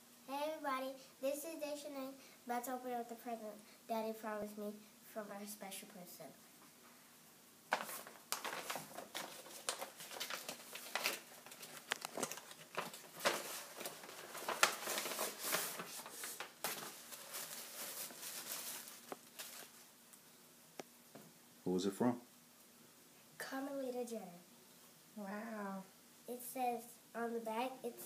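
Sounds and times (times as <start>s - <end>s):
wrapping paper crinkling and tearing: 7.7s - 19.9s.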